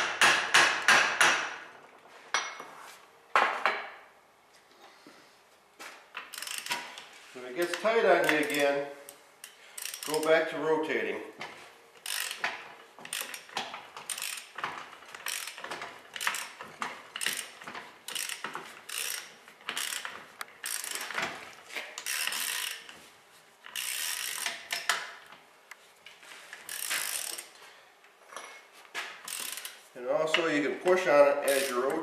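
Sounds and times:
socket wrench ratchet clicking: 0:06.2 - 0:06.9, 0:07.7 - 0:10.3, 0:12.0 - 0:14.6, 0:15.2 - 0:16.6, 0:17.2 - 0:21.1, 0:22.0 - 0:22.9, 0:23.7 - 0:25.1, 0:26.7 - 0:27.5, 0:29.3 - 0:29.8, 0:31.5 - 0:32.0.

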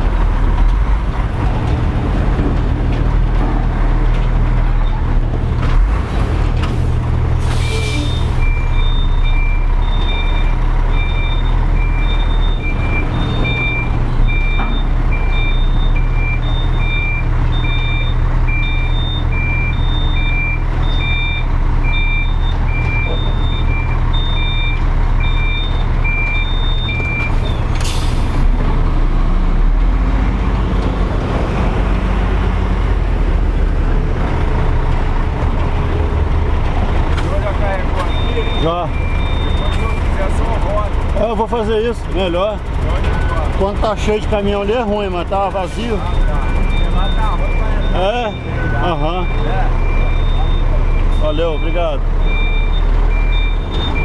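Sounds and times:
diesel engine at low revs: 0:00.0 - 0:54.0
air brake hiss: 0:07.4 - 0:08.3
two-tone reverse alarm beeping: 0:08.1 - 0:27.5, 0:38.0 - 0:40.1, 0:45.9 - 0:54.0.

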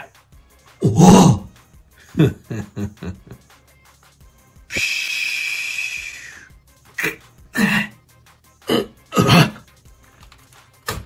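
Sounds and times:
man grunting in pain: 0:00.8 - 0:01.5, 0:07.0 - 0:08.0.

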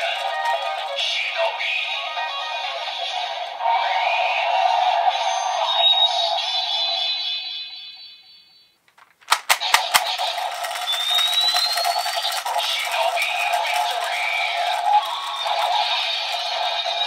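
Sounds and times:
rising whistle-like tone: 0:03.6 - 0:08.5, 0:10.6 - 0:12.8
toy buckle clicks: 0:08.9 - 0:16.7.

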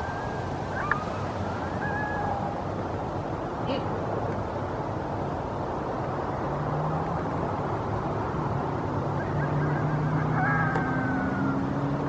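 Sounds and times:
dog howling low: 0:00.0 - 0:02.6
coyotes howling: 0:00.0 - 0:03.1, 0:09.1 - 0:12.0.

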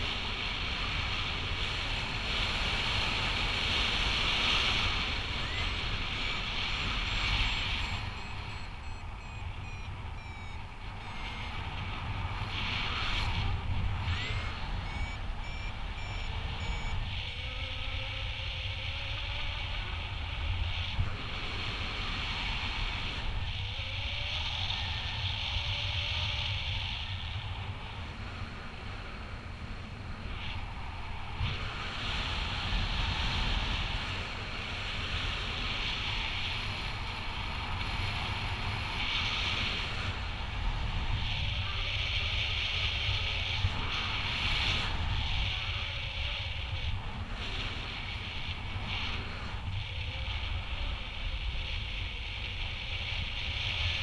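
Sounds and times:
wind rushing over microphone: 0:00.0 - 0:54.0
variometer electronic beeps: 0:04.6 - 0:13.3, 0:13.9 - 0:17.5.

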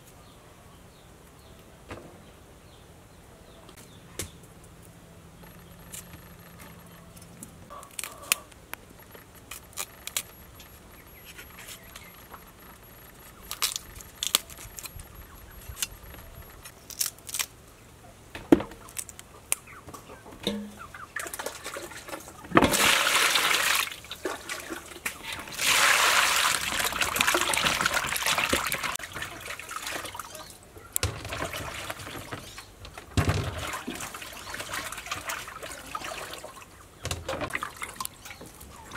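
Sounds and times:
water running into metal basin: 0:20.5 - 0:30.4, 0:33.3 - 0:36.6
water sloshing: 0:20.5 - 0:38.9.

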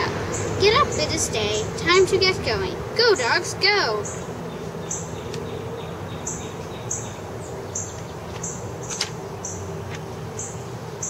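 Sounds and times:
steady background hum: 0:00.0 - 0:11.0
small bird chirping: 0:04.0 - 0:09.7.

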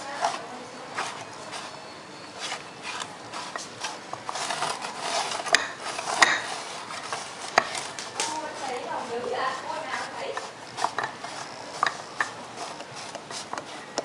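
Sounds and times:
balls rolling and knocking in cup: 0:00.0 - 0:14.0
cup scraping on wooden table: 0:00.1 - 0:14.0.

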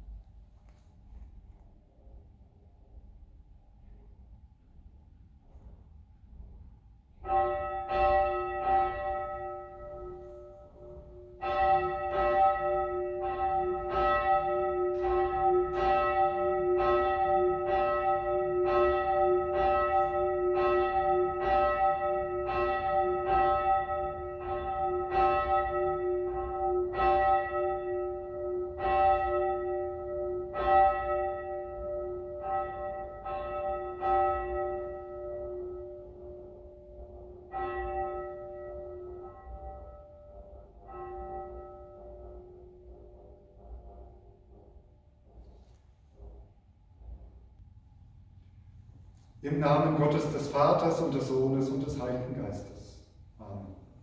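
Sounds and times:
church bell tolling: 0:07.1 - 0:47.5, 0:48.1 - 0:54.0.

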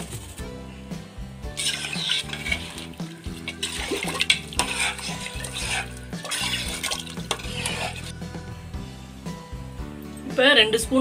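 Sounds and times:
background music: 0:00.0 - 0:11.0
spoon stirring sloshing liquid: 0:01.6 - 0:08.3.

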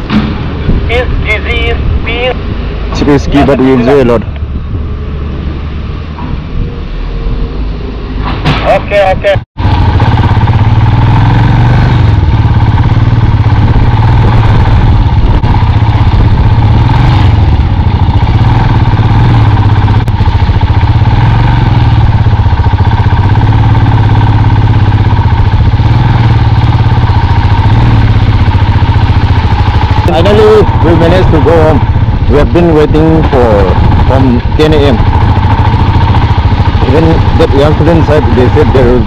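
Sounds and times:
motorcycle engine running: 0:08.7 - 0:39.0.

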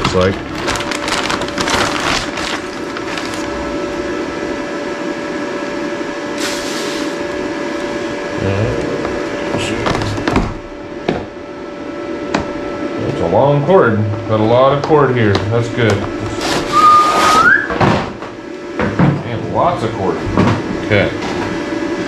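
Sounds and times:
plastic bag crinkling: 0:00.0 - 0:03.7
steady hum: 0:00.0 - 0:22.0.

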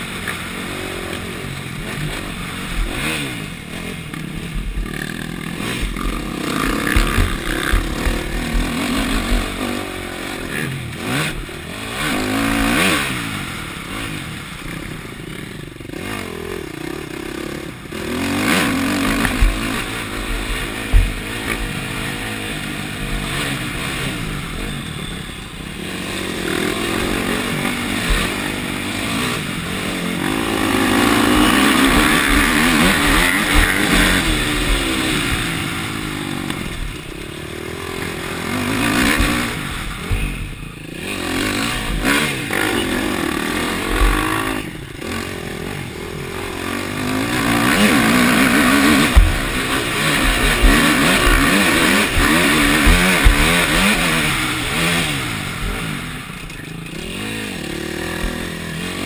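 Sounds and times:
motocross bike engine revving: 0:00.0 - 0:59.0
sharp knocks: 0:48.6 - 0:54.3.

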